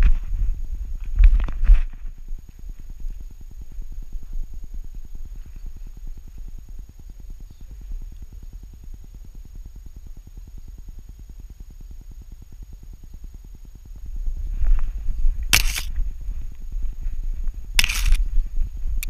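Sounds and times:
wind rumble on microphone: 0.0s - 8.6s, 13.8s - 19.0s.

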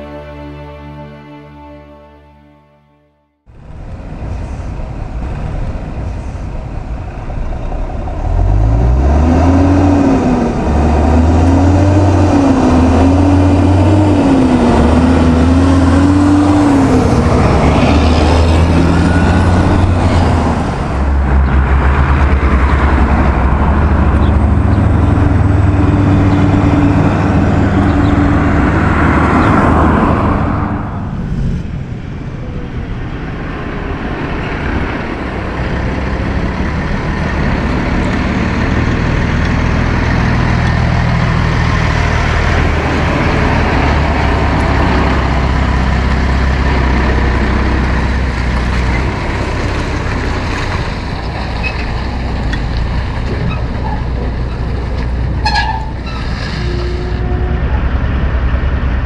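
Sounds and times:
trucks driving past: 3.5s - 59.0s.

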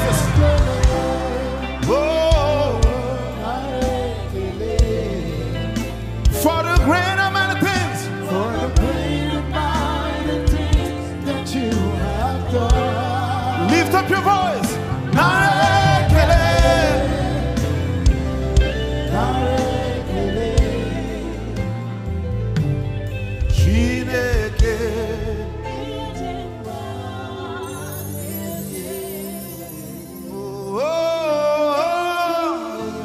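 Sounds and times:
singers and crowd singing: 0.0s - 22.4s, 23.5s - 33.0s
band with drums and bass: 0.0s - 25.2s.

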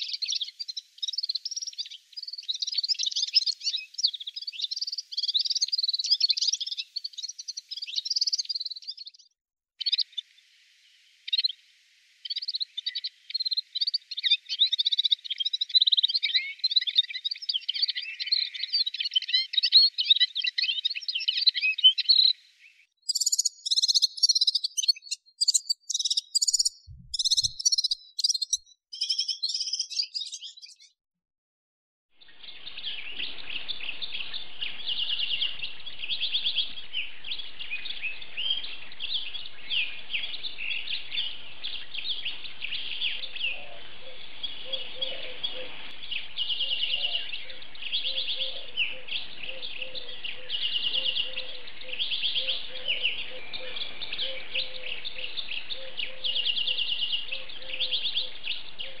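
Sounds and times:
bird high fast twittering: 0.0s - 10.3s, 11.2s - 11.6s, 12.2s - 31.0s
faint background hiss: 9.9s - 15.3s
bird jingling trilling song: 23.1s - 30.9s.

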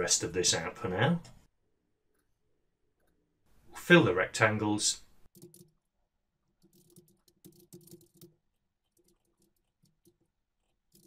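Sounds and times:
keyboard typing: 5.3s - 5.8s, 6.6s - 11.0s.

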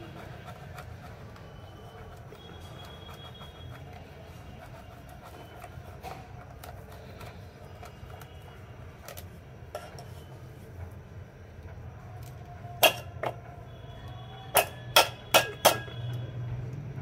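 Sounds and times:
egg scraping on metal grater: 0.0s - 9.2s.

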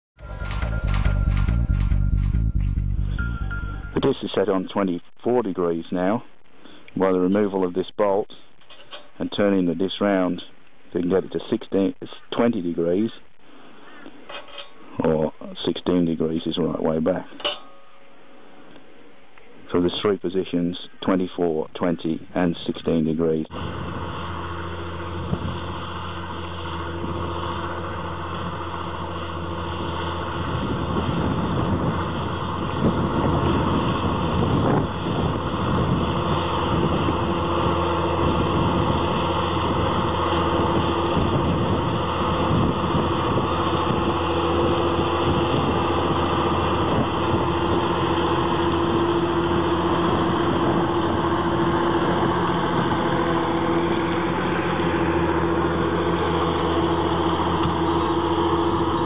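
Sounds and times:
tractor diesel engine under load: 0.2s - 4.2s, 23.3s - 59.0s.

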